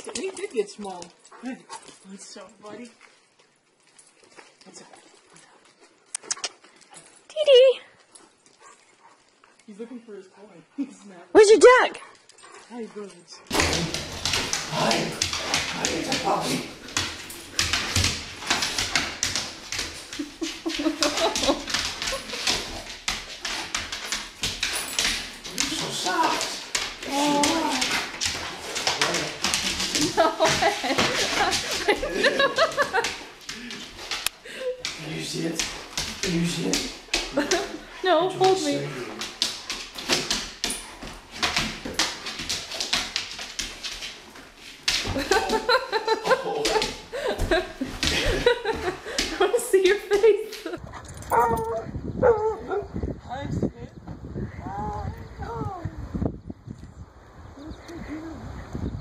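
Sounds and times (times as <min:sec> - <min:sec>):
dog scuffling and panting: 0:12.0 - 0:51.6.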